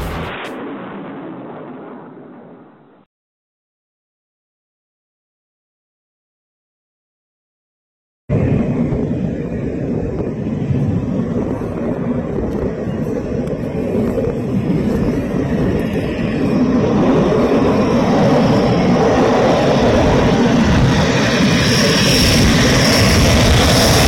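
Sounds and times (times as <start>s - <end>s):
jet engine rush: 0.0s - 3.0s, 8.3s - 24.0s.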